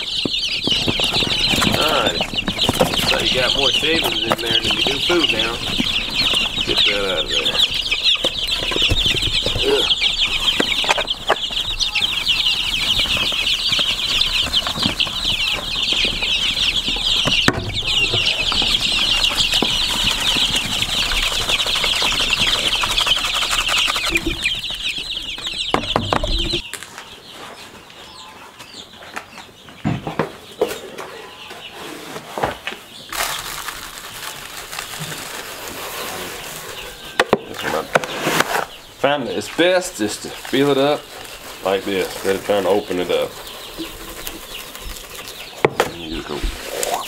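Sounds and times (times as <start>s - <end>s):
chicks peeping: 0.0s - 47.0s.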